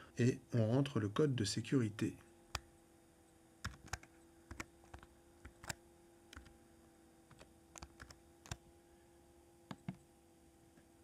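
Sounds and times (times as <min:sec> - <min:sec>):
faint steady hum: 0:00.0 - 0:11.0
keyboard keystrokes: 0:03.6 - 0:06.5, 0:07.3 - 0:08.6.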